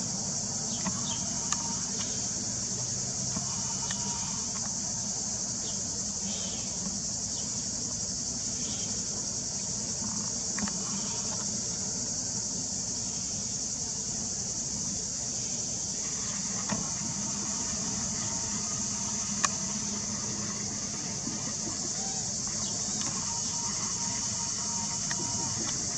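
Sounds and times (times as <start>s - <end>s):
cicadas shrilling: 0.0s - 25.9s
faint chirps: 0.0s - 25.9s
low ship engine rumble: 0.0s - 25.9s.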